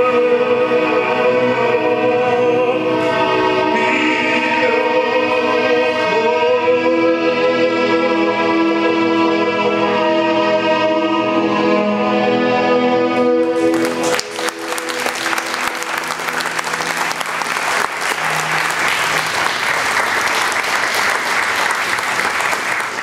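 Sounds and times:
music holding final chord: 13.2s - 20.6s
audience applauding: 13.4s - 23.0s.

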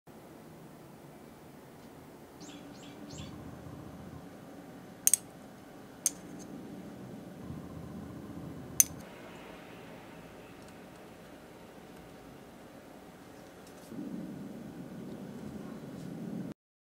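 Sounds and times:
sharp clicks: 5.0s - 5.3s.

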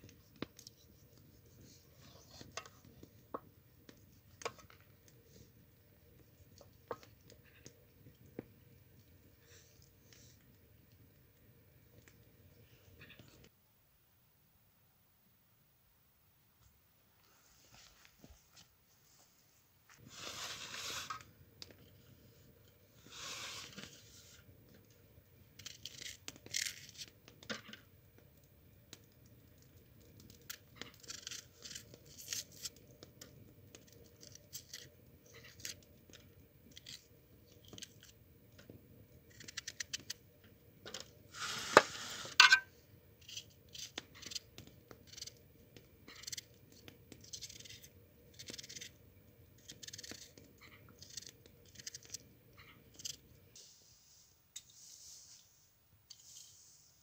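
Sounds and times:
onion skin crackling and tearing: 25.6s - 27.1s, 30.2s - 32.8s, 33.7s - 38.2s, 39.3s - 40.2s, 43.2s - 45.4s, 46.1s - 49.0s, 49.6s - 52.2s.

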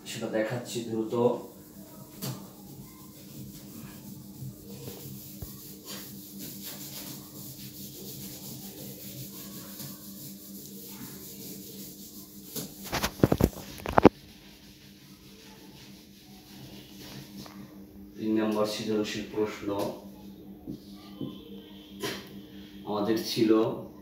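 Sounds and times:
eraser rubbing on whiteboard: 1.4s - 17.5s.

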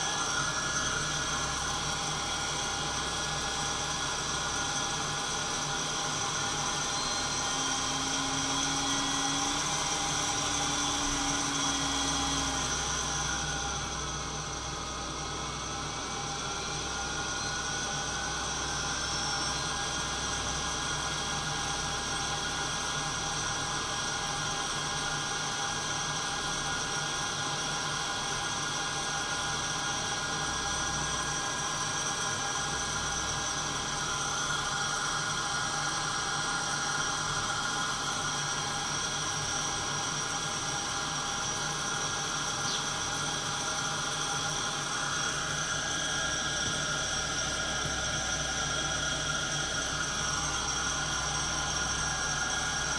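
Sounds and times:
coffee roaster whirring: 0.0s - 52.9s
faint whistle: 6.7s - 8.3s.

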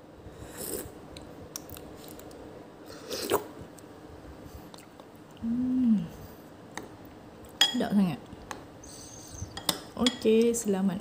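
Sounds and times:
person slurping: 0.5s - 0.9s, 3.0s - 3.5s
person humming mmm: 5.4s - 6.2s.

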